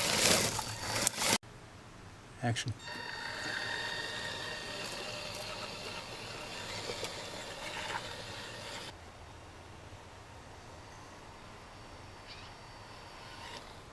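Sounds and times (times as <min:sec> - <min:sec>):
toy car motor whining: 0:02.8 - 0:08.9, 0:13.2 - 0:13.9.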